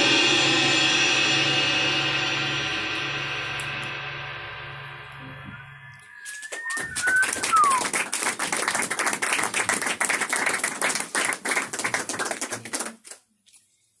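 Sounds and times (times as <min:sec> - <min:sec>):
short falling whistle: 0:05.5 - 0:08.0
audience applauding: 0:06.2 - 0:13.2.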